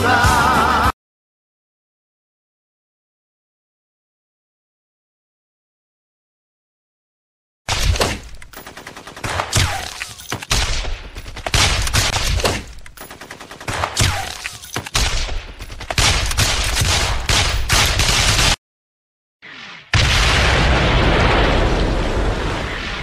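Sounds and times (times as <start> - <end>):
single gunshots: 16.0 - 18.6.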